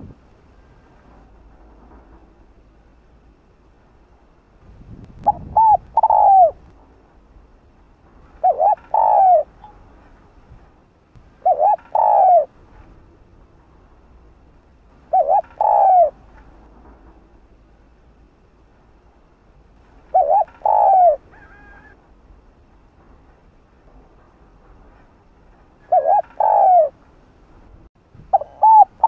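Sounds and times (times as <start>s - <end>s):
dove cooing: 5.2s - 6.6s, 8.3s - 9.8s, 11.4s - 12.6s, 15.1s - 16.3s, 20.1s - 22.0s, 25.8s - 27.0s, 28.3s - 29.0s.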